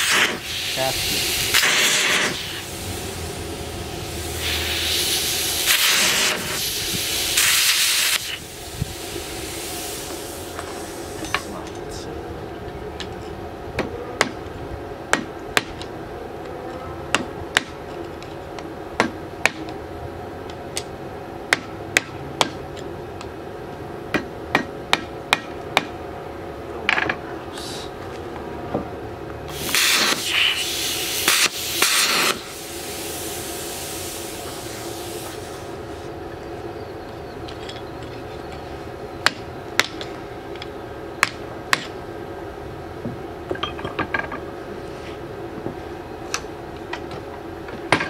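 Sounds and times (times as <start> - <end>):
hissing noise: 0.0 - 12.1, 29.5 - 36.1
steady hum: 0.0 - 48.0.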